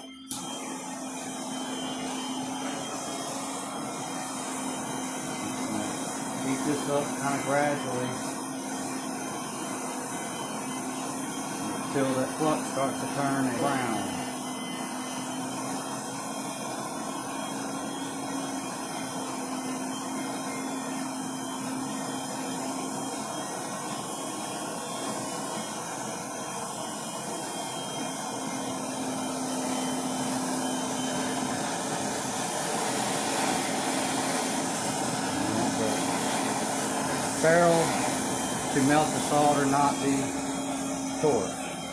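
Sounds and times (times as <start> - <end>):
gas torch flame hissing: 0.3 - 14.4, 22.8 - 41.9.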